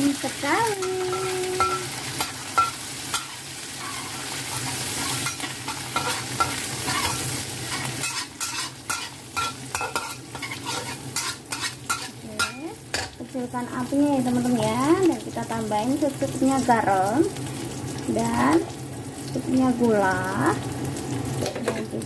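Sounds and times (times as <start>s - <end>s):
food sizzling in hot oil: 0.0s - 22.0s
metal spatula scraping a wok: 0.8s - 12.6s.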